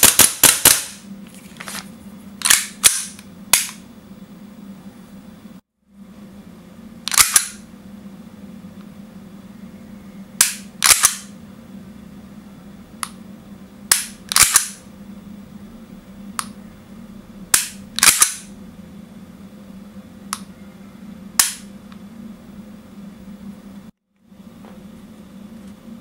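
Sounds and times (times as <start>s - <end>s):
trigger dry-fire clicks: 7.1s - 7.5s, 10.4s - 11.2s, 13.9s - 14.7s, 17.6s - 18.4s.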